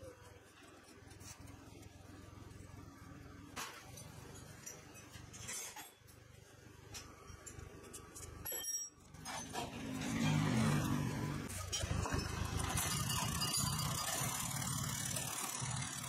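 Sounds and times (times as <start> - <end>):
wrench clinking on bolts: 7.0 - 10.4.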